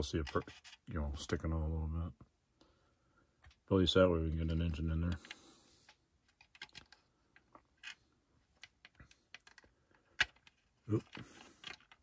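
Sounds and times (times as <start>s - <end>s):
plastic model car clicks and taps: 5.1s - 8.0s, 8.6s - 10.6s.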